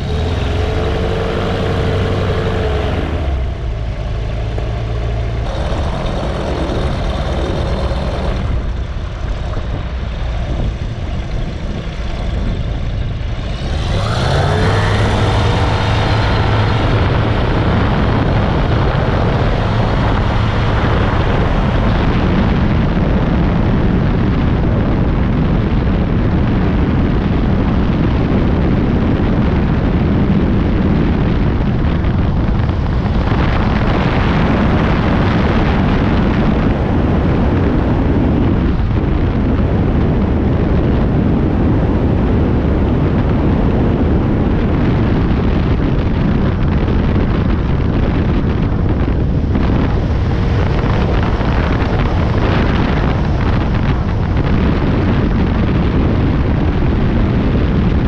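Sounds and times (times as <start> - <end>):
aircraft engine and propeller: 0.0 - 58.0
wind buffeting microphone: 0.0 - 58.0.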